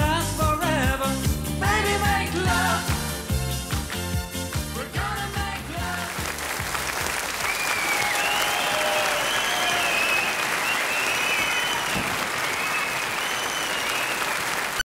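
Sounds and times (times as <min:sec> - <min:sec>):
studio audience applauding: 0:05.8 - 0:14.9.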